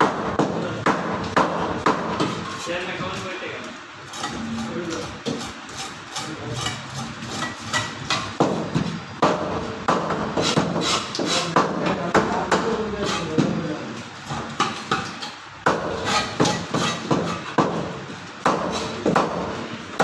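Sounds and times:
cleaver chopping fish on wooden board: 15.6 - 19.5.

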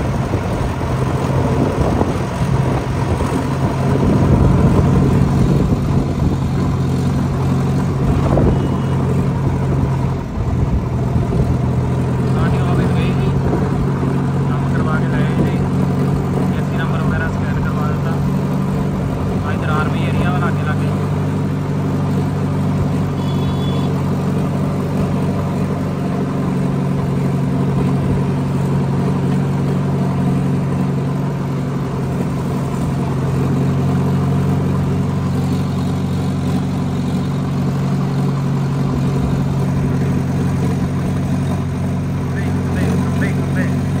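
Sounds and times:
tractor diesel engine running: 0.0 - 44.0.

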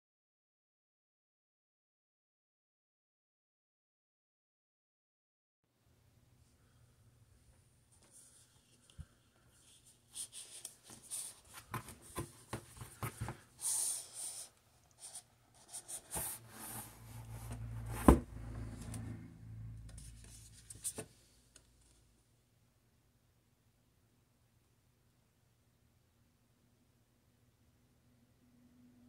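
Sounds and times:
cardboard scraping and rubbing: 10.2 - 18.3.

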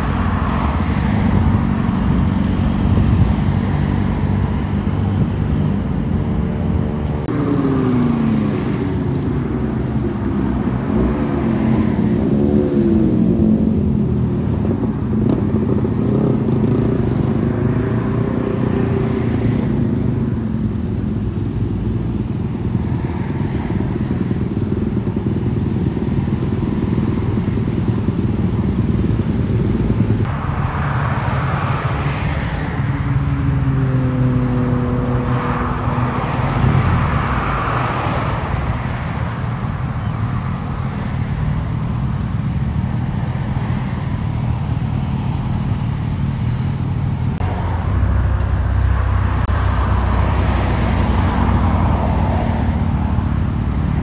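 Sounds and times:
motorcycle engines running loud: 0.0 - 54.0
road traffic noise: 0.0 - 54.0
engine revving: 6.8 - 14.2.

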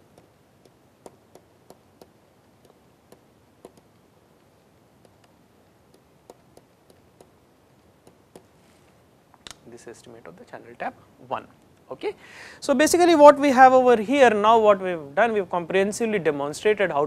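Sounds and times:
stylus tapping on tablet screen: 0.0 - 8.6
faint room hiss: 0.0 - 17.0.

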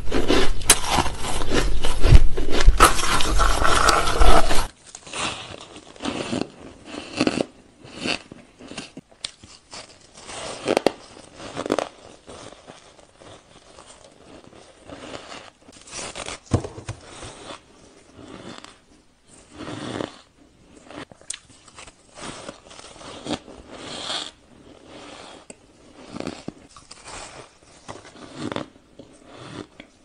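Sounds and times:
person crunching frozen ice: 0.0 - 18.8.

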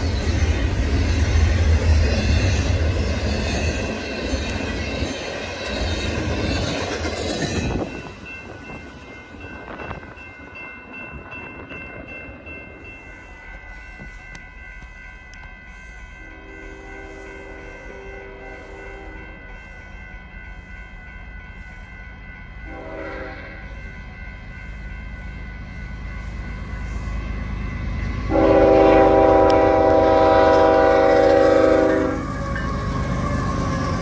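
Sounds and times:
freight train cars rumbling past: 0.0 - 34.0
distant locomotive horn: 16.3 - 19.4, 22.6 - 23.7, 28.2 - 34.0.

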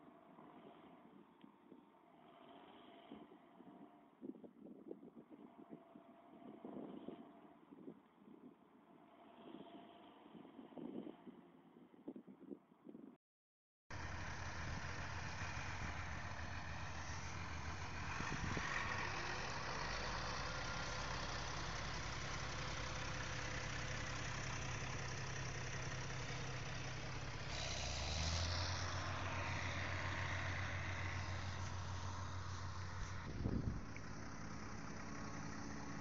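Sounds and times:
heavy vehicle engine running: 13.9 - 36.0.

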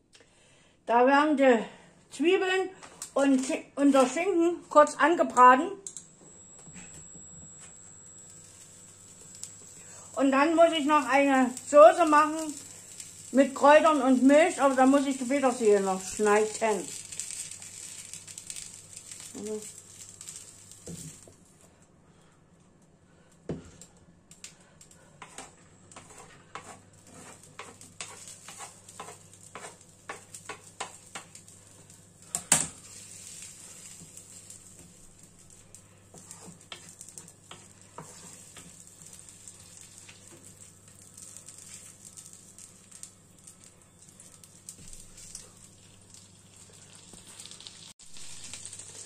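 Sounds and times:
shallots sizzling in butter: 6.2 - 21.3, 25.2 - 49.0
spatula tapping and knocking pan: 27.6 - 31.4.

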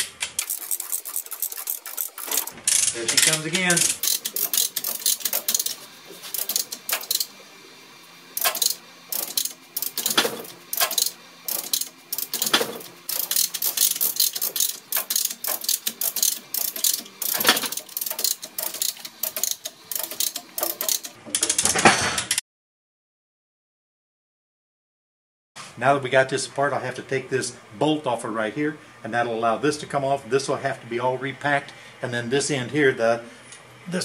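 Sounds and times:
chain hoist pawl clicking: 0.3 - 7.3, 8.4 - 21.7.

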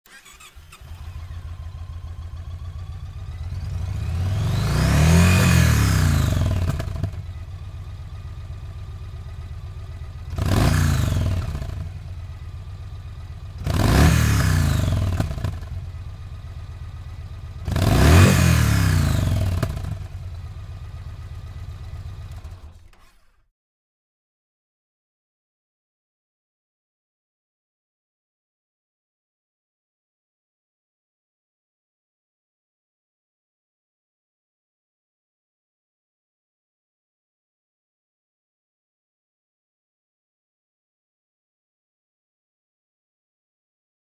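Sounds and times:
motorcycle engine starting: 0.0 - 23.5
motorcycle engine idling: 0.1 - 23.0
motorcycle engine revving: 0.1 - 23.3.

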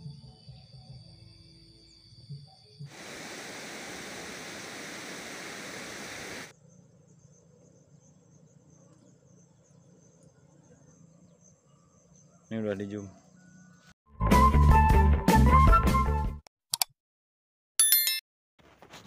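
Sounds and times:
insects trilling: 0.0 - 13.7
even rushing hiss: 2.9 - 6.5.

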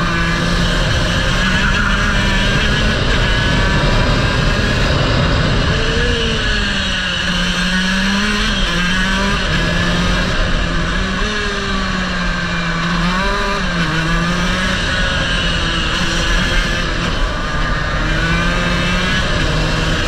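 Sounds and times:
wind rush on microphone: 0.0 - 8.6
kart engine running hard: 0.0 - 20.0.

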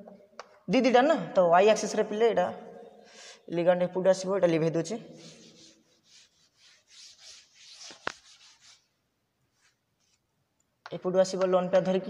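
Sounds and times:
chalkboard duster rubbing: 5.2 - 9.0.

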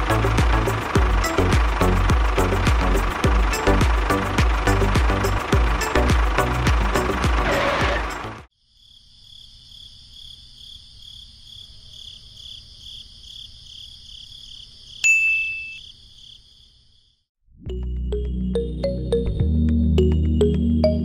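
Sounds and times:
loud rhythmic clatter: 0.0 - 7.5
crickets chirping: 8.5 - 17.2
bright ding: 15.0 - 15.8.

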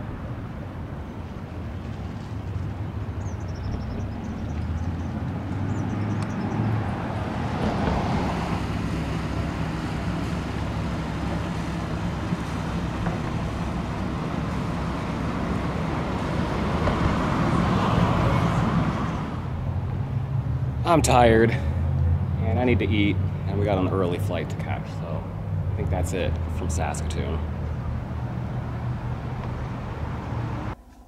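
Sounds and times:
road traffic hum: 0.0 - 31.0.

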